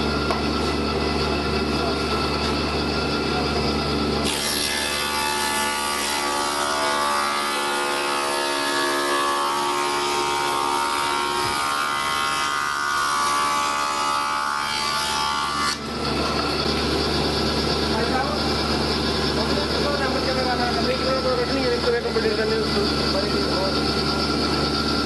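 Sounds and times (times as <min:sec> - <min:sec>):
spindle moulder cutting wood: 0:04.2 - 0:17.4.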